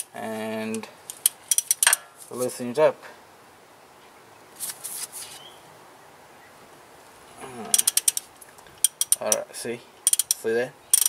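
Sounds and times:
socket wrench metallic clicks: 0:07.7 - 0:08.2, 0:08.8 - 0:09.4, 0:10.0 - 0:11.0.

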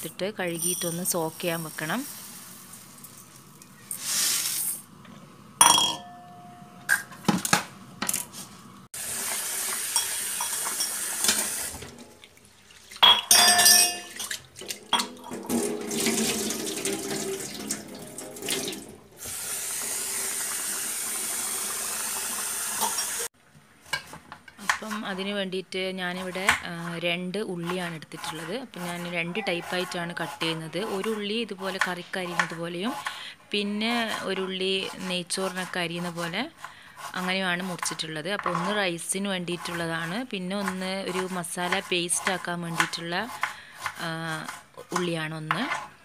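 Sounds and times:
steel bowl clinks: 0:05.6 - 0:06.7, 0:13.0 - 0:14.2
tap water running: 0:09.0 - 0:23.3.

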